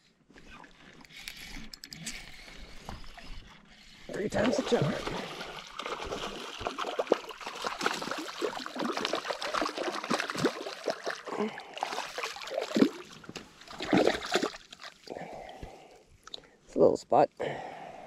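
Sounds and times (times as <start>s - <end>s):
water splashing and trickling: 0.6s - 15.9s.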